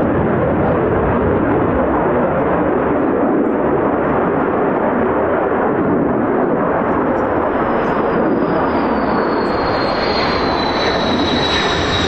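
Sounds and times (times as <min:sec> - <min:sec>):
jet engine roar: 0:00.0 - 0:12.0.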